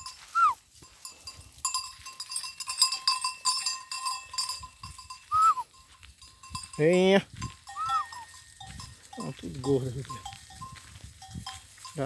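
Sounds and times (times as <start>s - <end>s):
animal bells clinking: 0.0s - 12.0s
herder whistling: 0.3s - 0.6s, 5.3s - 5.7s, 7.7s - 8.3s.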